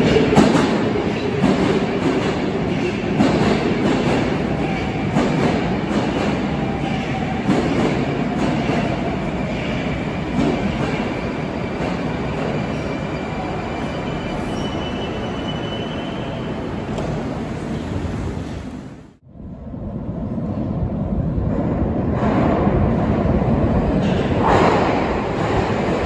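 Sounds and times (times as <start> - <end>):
subway train running: 0.0 - 26.0
high brake squeal: 12.6 - 16.6.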